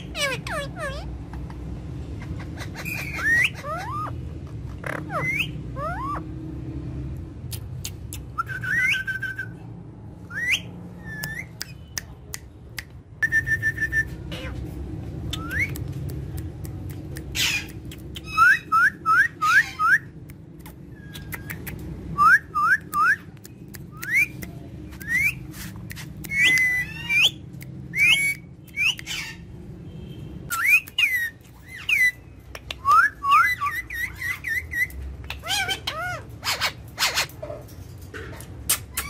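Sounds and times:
parakeets squawking: 0.0s - 6.5s, 14.1s - 15.8s, 17.2s - 22.8s, 25.0s - 29.8s, 30.5s - 39.0s
parakeets chirping: 0.0s - 12.0s, 13.4s - 39.0s.

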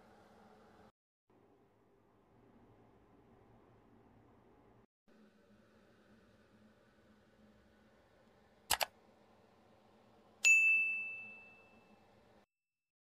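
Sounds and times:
bell ding: 10.4s - 12.0s.

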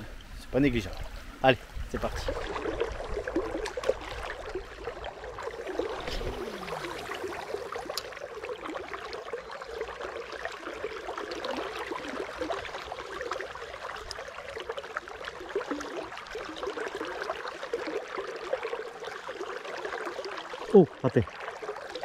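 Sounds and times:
river water babbling: 0.0s - 22.0s.

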